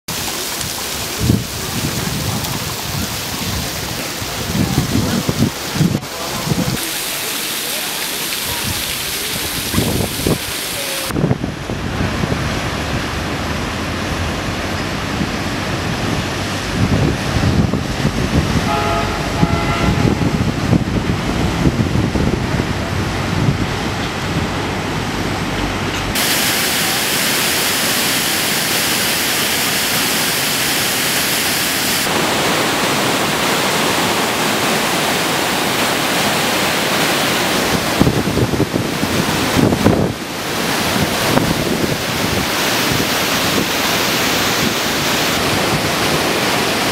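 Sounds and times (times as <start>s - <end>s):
churned river water rushing: 0.1s - 46.9s
waterfall rushing: 0.1s - 46.9s
wind buffeting microphone: 0.6s - 6.8s, 8.5s - 26.2s, 37.6s - 46.9s.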